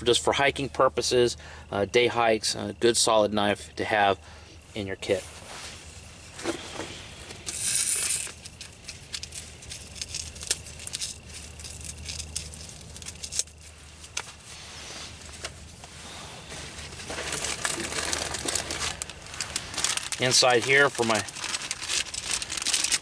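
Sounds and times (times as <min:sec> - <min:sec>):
nylon fabric rustling: 0:13.7 - 0:23.0.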